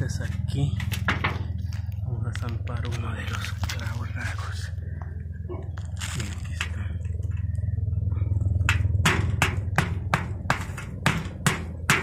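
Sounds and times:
low hum: 0:00.0 - 0:12.0
hammer striking nail on metal: 0:08.7 - 0:12.0.

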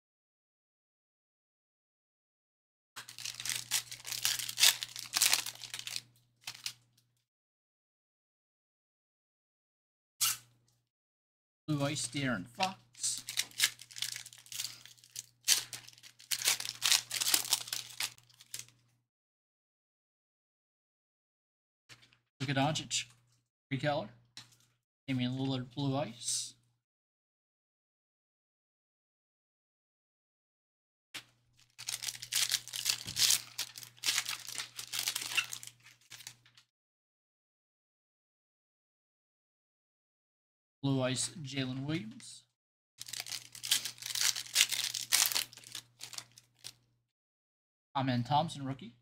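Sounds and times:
card pack wrappers crinkling: 0:03.0 - 0:06.8, 0:13.0 - 0:18.7, 0:31.6 - 0:36.4, 0:43.0 - 0:46.7.

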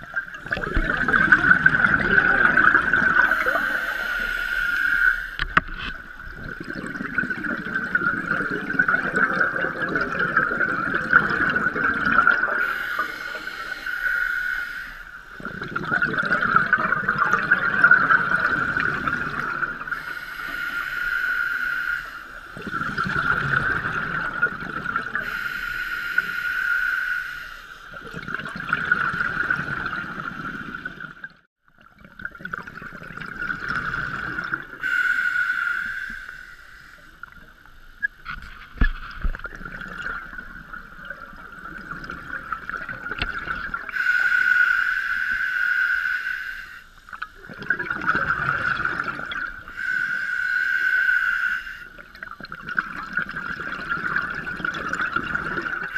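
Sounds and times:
bubbling exhalations underwater: 0:00.0 - 0:04.5, 0:05.4 - 0:13.0, 0:15.3 - 0:20.2, 0:22.6 - 0:25.4, 0:27.9 - 0:34.8, 0:38.2 - 0:44.0, 0:47.3 - 0:49.7, 0:52.0 - 0:55.9
hissing inhalation: 0:02.0 - 0:05.9, 0:12.5 - 0:15.4, 0:19.8 - 0:22.6, 0:25.2 - 0:28.0, 0:34.8 - 0:37.4, 0:43.9 - 0:47.2, 0:49.7 - 0:52.0.

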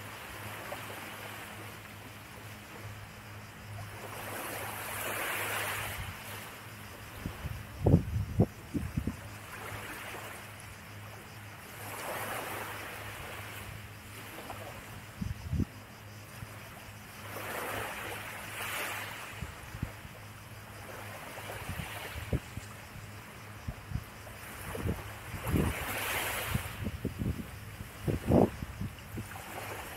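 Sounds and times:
small waves washing onto beach: 0:03.7 - 0:07.6, 0:08.8 - 0:15.4, 0:16.0 - 0:29.9
wind buffets on microphone: 0:07.1 - 0:09.4, 0:15.1 - 0:16.0, 0:21.6 - 0:23.0, 0:23.6 - 0:29.9.

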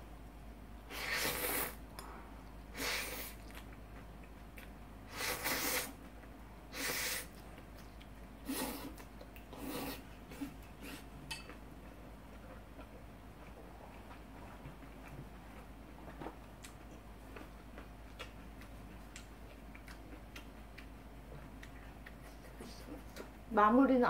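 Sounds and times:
person slurping noodles: 0:00.9 - 0:01.8, 0:05.1 - 0:06.0, 0:08.4 - 0:11.0.

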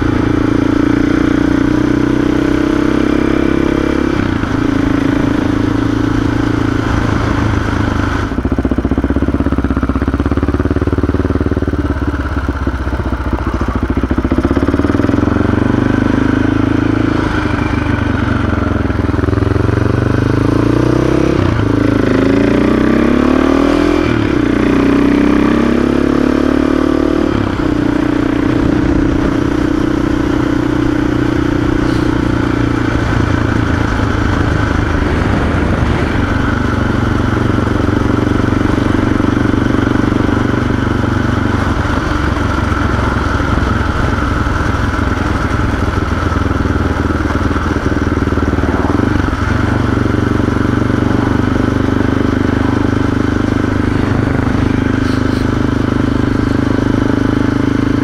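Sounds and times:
motorcycle engine running: 0:00.0 - 0:58.0
wind rushing at helmet: 0:27.3 - 0:38.5, 0:41.2 - 0:56.6.

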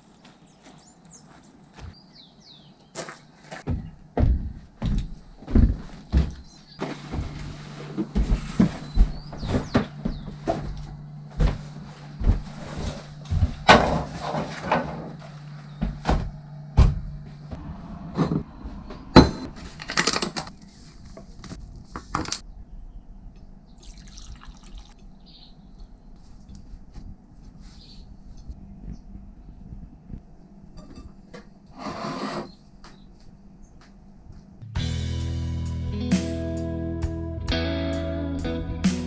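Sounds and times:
footsteps on wooden floor: 0:00.2 - 0:02.0, 0:03.0 - 0:17.6
water poured into bowl: 0:23.8 - 0:25.0.

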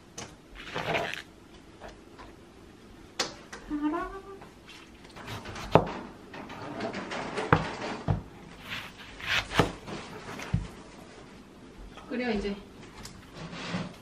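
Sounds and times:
rustling: 0:00.6 - 0:01.3
kitchen knocks and clatters: 0:05.2 - 0:08.4
knife cutting onion on board: 0:08.6 - 0:09.8.

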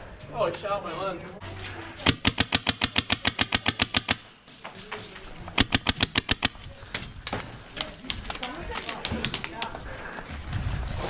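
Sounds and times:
airsoft rifle firing: 0:02.0 - 0:04.3, 0:05.6 - 0:06.6.

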